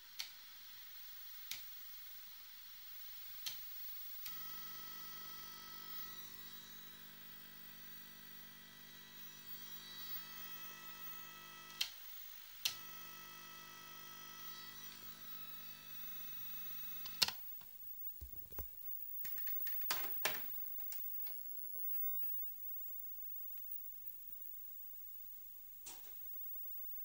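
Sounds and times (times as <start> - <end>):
steady electronic buzz: 4.3 - 17.2.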